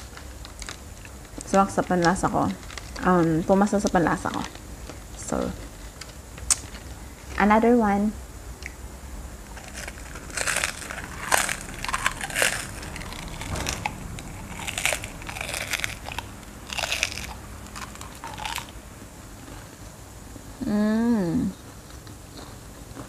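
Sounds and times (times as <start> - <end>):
crunchy snack being chewed: 9.5 - 18.8, 21.6 - 23.0.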